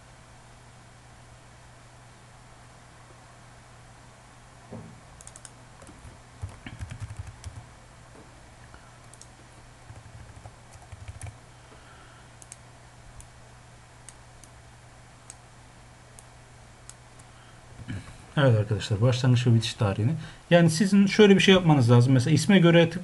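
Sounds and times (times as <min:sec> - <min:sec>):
steady low hum: 0:00.0 - 0:23.0
keyboard typing: 0:05.2 - 0:07.7, 0:09.0 - 0:09.3, 0:09.9 - 0:11.4.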